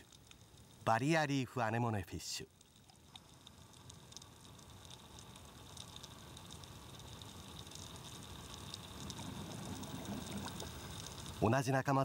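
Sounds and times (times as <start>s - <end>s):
small crackles and clicks: 0.0s - 0.9s, 2.2s - 11.6s
underwater watery wash: 2.7s - 11.4s.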